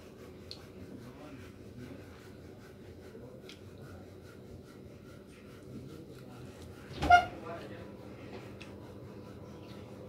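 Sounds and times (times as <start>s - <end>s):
soft chewing: 0.3s - 0.9s, 1.8s - 4.4s.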